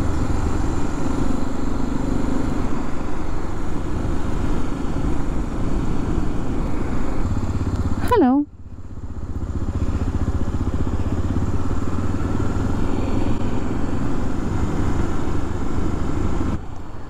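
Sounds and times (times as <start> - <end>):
motorcycle engine running: 0.0 - 17.0
rush of riding noise: 0.0 - 17.0.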